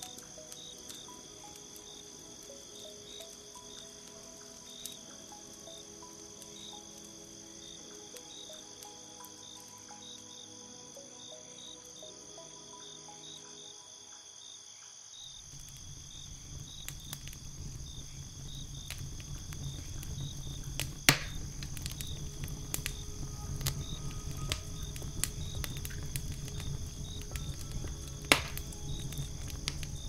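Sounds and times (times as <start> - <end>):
wood fire crackling: 0.0 - 14.1, 15.2 - 30.0
crickets chirping: 0.0 - 30.0
low rumble: 15.5 - 30.0
sharp loud pops: 21.0 - 21.5, 28.3 - 28.6.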